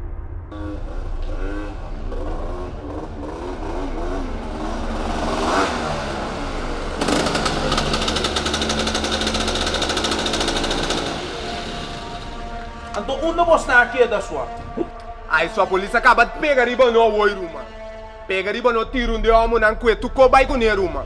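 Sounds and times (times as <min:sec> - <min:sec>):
motor scooter engines: 0:00.5 - 0:13.0.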